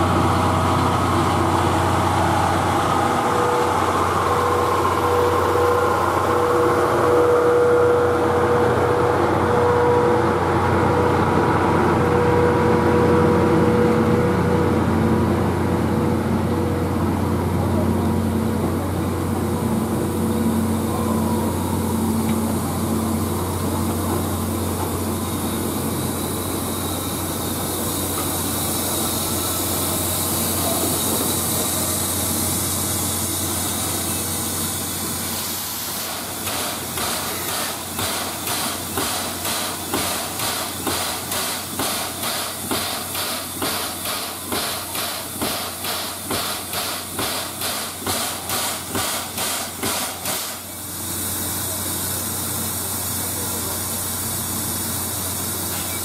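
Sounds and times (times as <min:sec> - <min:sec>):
rhythmic steam pulses: 0:00.0 - 0:56.0
steam hissing: 0:18.5 - 0:56.0.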